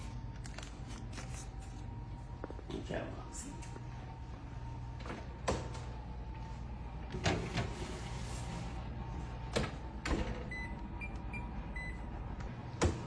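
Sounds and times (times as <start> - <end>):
oven door shutting: 9.4 - 10.7
oven keypad beeps: 10.4 - 12.2.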